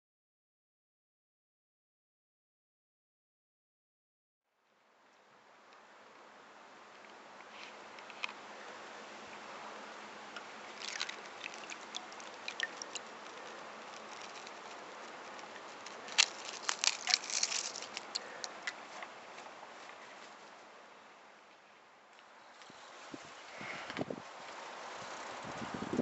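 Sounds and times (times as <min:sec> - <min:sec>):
ice sheet cracking: 0:10.7 - 0:14.8, 0:15.4 - 0:18.5.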